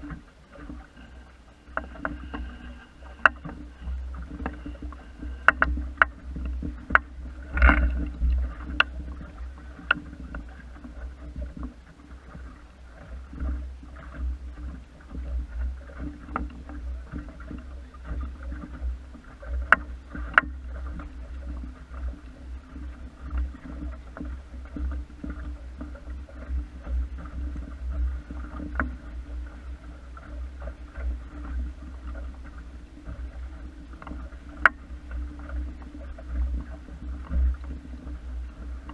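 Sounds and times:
low rumble: 0:00.0 - 0:38.9
water lapping against hull: 0:00.0 - 0:38.9
boat clicks and knocks: 0:01.7 - 0:11.7.

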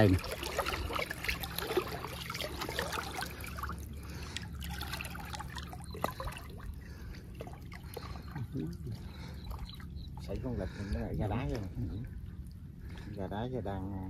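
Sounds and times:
small splashes: 0:00.0 - 0:10.9
muddy water sloshing: 0:00.0 - 0:13.9.

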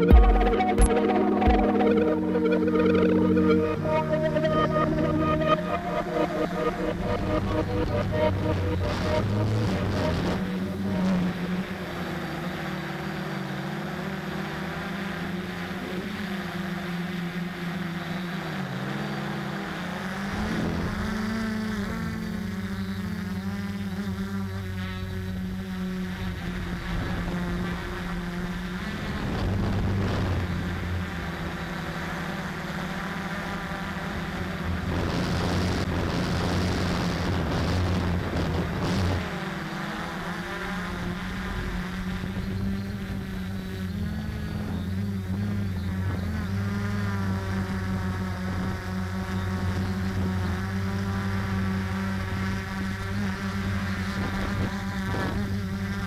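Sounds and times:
quadcopter motors buzzing: 0:00.0 - 0:56.0.

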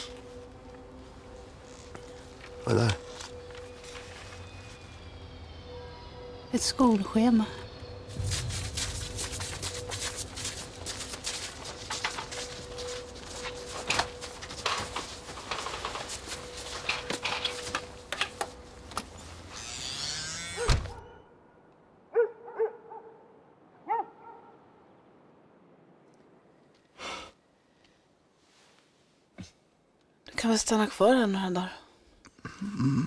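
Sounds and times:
dog barking: 0:22.1 - 0:24.6.

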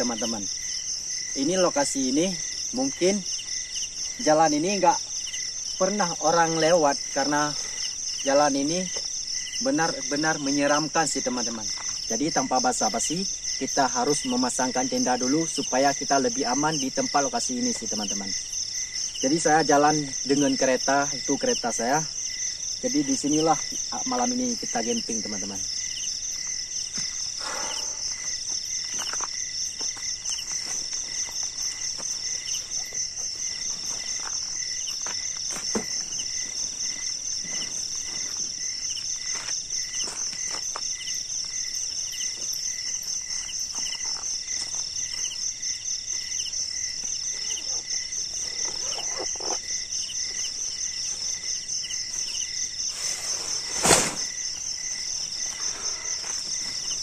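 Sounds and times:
insects high-pitched trill: 0:00.0 - 0:57.0
slower repeating insect chirp: 0:00.0 - 0:57.0
tent rustling: 0:25.8 - 0:41.6, 0:47.2 - 0:57.0
footsteps on gravel: 0:28.1 - 0:41.6, 0:42.3 - 0:45.4.

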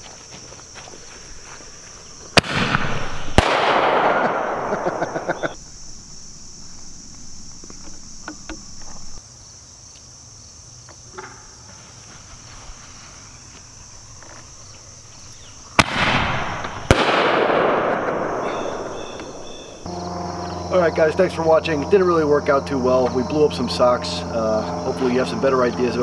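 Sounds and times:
insects chirring: 0:00.0 - 0:26.0
loud hissing rush: 0:01.2 - 0:09.2
firework bangs: 0:02.3 - 0:05.6, 0:15.8 - 0:19.9
firework crackles: 0:02.3 - 0:05.7, 0:15.8 - 0:18.5.

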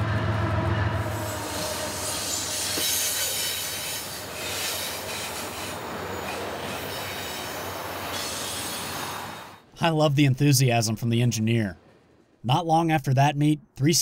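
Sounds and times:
wheels squealing on rails: 0:00.0 - 0:09.7
freight train cars rolling: 0:00.0 - 0:13.1.

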